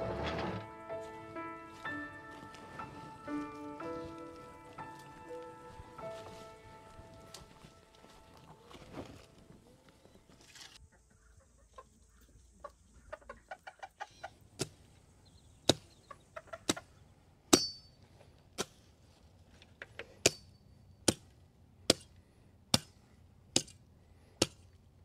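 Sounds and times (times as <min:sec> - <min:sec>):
chicken clucking softly: 0:10.8 - 0:14.5
sharp knocks with metallic ring: 0:17.5 - 0:17.9.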